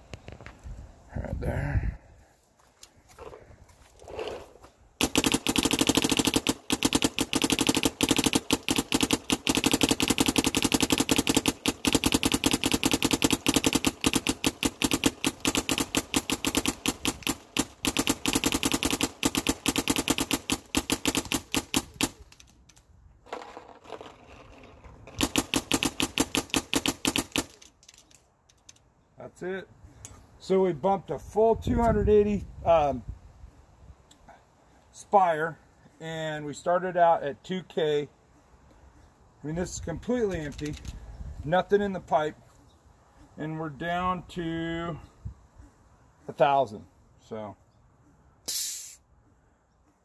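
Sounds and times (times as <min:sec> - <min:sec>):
paintball marker rapid popping: 0:05.0 - 0:22.8, 0:25.1 - 0:28.2.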